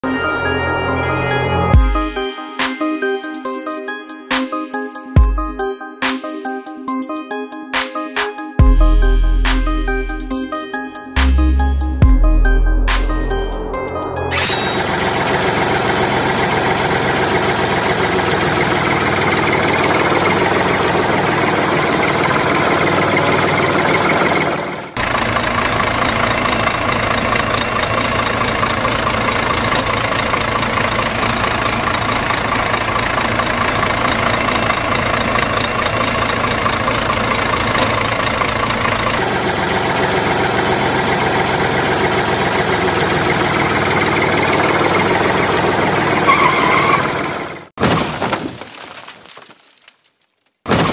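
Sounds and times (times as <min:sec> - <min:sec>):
diesel truck engine idling: 0:08.6 - 0:10.4, 0:11.1 - 0:47.7.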